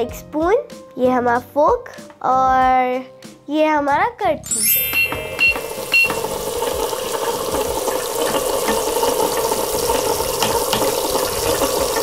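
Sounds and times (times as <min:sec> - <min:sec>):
electronic sizzling sound effect: 0:04.5 - 0:07.5.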